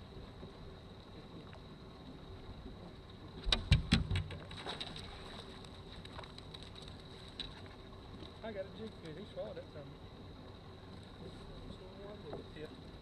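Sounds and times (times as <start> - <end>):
faint steady hum: 0.0 - 13.0
hard knocks and rattles on boat: 3.4 - 5.3.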